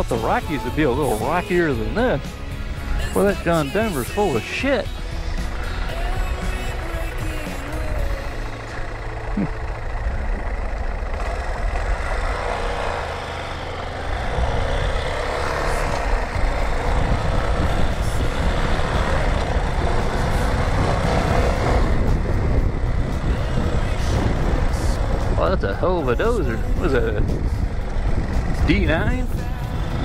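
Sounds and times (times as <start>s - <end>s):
motorcycle engine running: 0.0s - 30.0s
wind on microphone: 15.8s - 30.0s.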